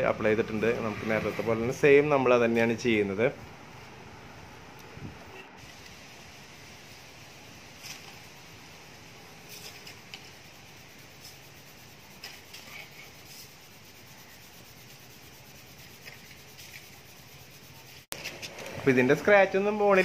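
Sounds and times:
steady low hiss: 0:00.0 - 0:20.0
cloth rubbing on plastic: 0:11.0 - 0:18.1.

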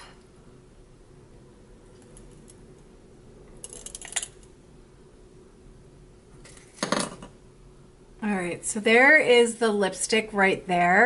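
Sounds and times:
faint room hum: 0:00.0 - 0:11.0.

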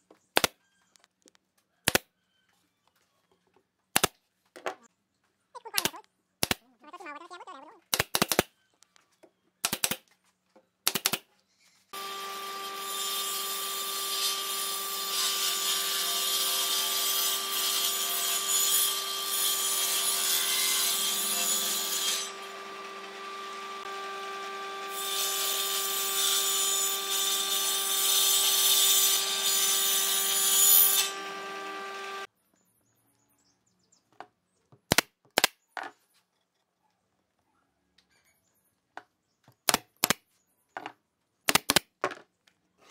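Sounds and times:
pneumatic nail gun shots: 0:09.6 - 0:10.0, 0:10.8 - 0:11.2, 0:41.5 - 0:41.9.

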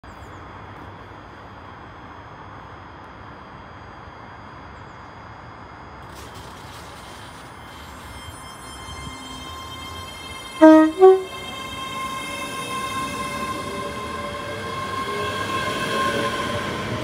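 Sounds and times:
electric train humming: 0:05.3 - 0:17.0
high-pitched equipment whine: 0:06.0 - 0:17.0.

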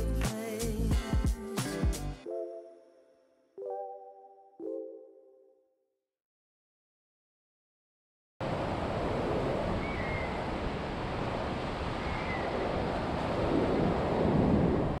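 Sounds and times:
wind buffeting microphone: 0:08.7 - 0:15.0.

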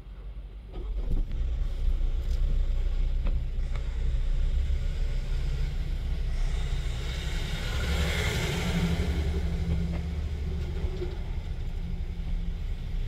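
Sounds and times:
diesel trucks idling: 0:00.1 - 0:13.0.

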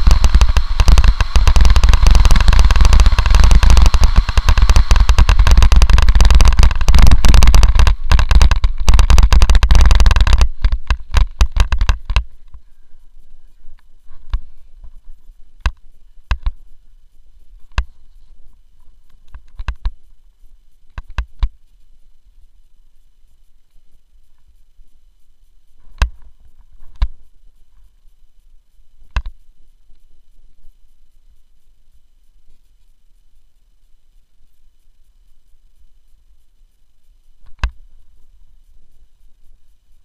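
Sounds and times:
sharp clicks: 0:00.0 - 0:16.6, 0:17.6 - 0:18.0, 0:19.0 - 0:20.1, 0:20.9 - 0:21.6, 0:29.1 - 0:30.0, 0:37.4 - 0:37.8
bike rattling over rough trail: 0:00.0 - 0:16.8.

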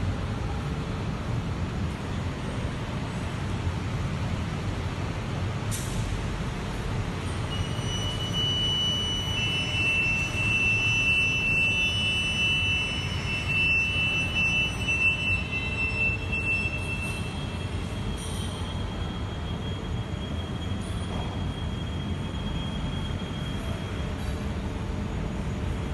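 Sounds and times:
metro train rumbling: 0:00.0 - 0:25.9
high squeal of wheels: 0:07.2 - 0:24.6.

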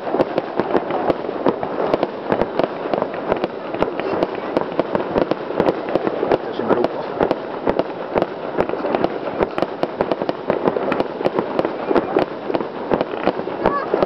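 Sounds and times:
fireworks bangs and crackles: 0:00.0 - 0:14.0.

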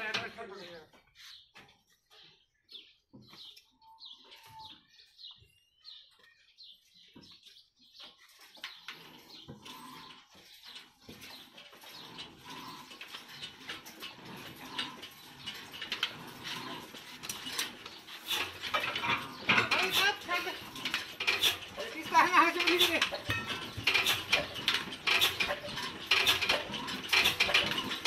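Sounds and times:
birds chirping: 0:00.0 - 0:28.0
diesel engine cranked by hand: 0:08.8 - 0:28.0.

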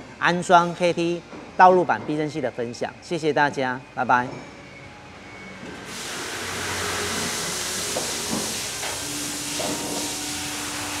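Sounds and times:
steady hiss: 0:05.9 - 0:11.0.

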